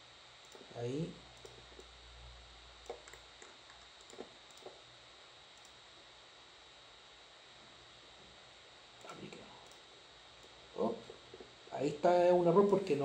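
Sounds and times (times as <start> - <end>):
thin high whine: 0.0 - 13.0
computer mouse clicks: 0.4 - 0.7, 1.4 - 1.9, 2.8 - 4.8, 5.6 - 5.8, 9.0 - 10.6.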